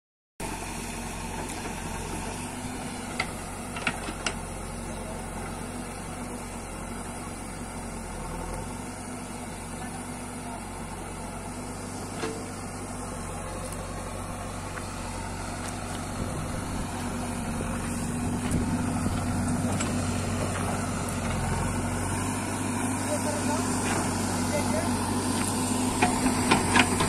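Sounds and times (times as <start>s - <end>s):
backhoe digging earth: 0.4s - 27.0s
diesel engine running: 0.4s - 27.0s.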